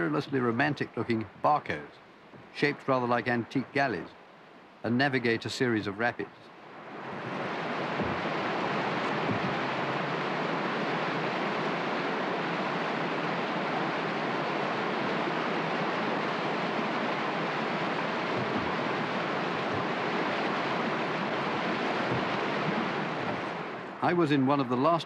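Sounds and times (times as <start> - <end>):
river rapids rushing: 6.6 - 24.9.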